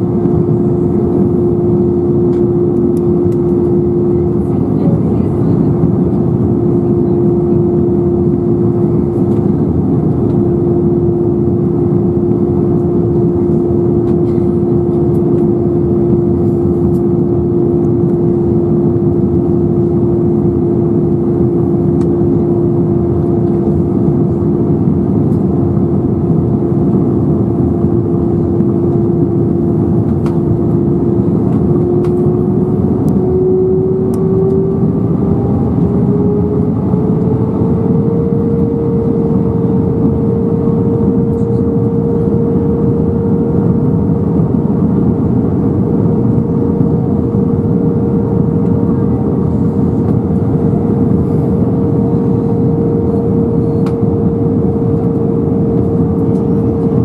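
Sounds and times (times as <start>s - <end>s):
airliner cabin roar: 0.0s - 57.0s
droning engine tone: 0.0s - 57.0s.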